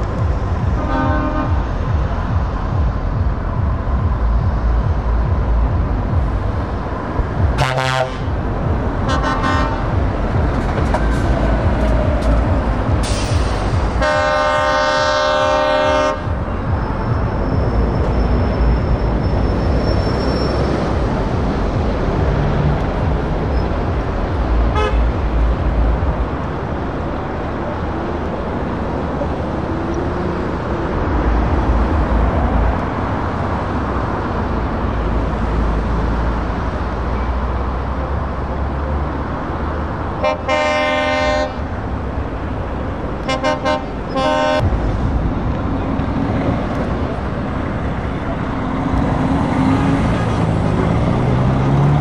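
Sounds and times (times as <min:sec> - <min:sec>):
lorry diesel engines rumbling: 0:00.0 - 0:52.0
lorry horn: 0:00.8 - 0:01.6, 0:07.6 - 0:08.3, 0:09.0 - 0:10.0, 0:13.9 - 0:16.6, 0:24.7 - 0:25.2, 0:40.2 - 0:41.6, 0:43.3 - 0:44.7.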